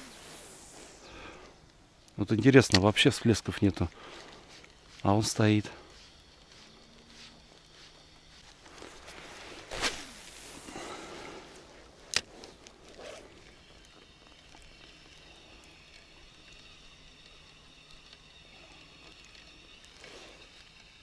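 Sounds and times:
fishing reel whirring: 0.0s - 1.5s, 3.4s - 21.0s
sharp click: 2.6s - 3.0s.

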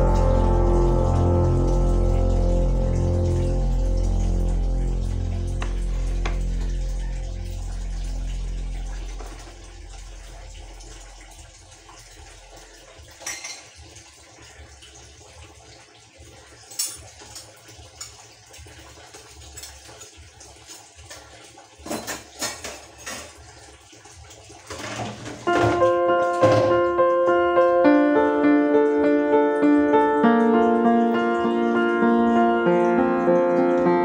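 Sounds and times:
piano music: 0.0s - 10.7s, 25.4s - 34.0s
water and scrubbing: 2.8s - 13.9s, 24.6s - 26.9s
pots and utensils clinking: 9.1s - 9.6s, 13.2s - 14.0s, 16.6s - 18.3s, 19.4s - 23.5s, 24.6s - 27.0s.

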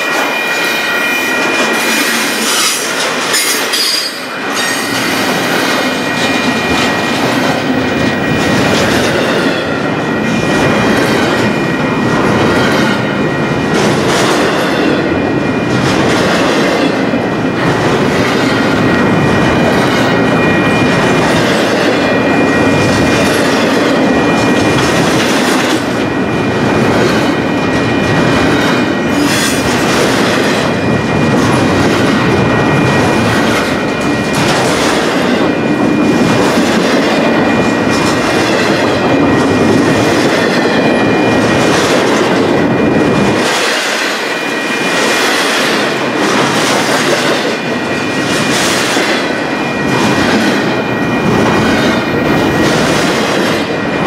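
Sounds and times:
high wheel squeal: 0.0s - 5.3s
clickety-clack over rail joints: 0.0s - 54.0s
train wheels rumbling on rail: 0.0s - 54.0s.

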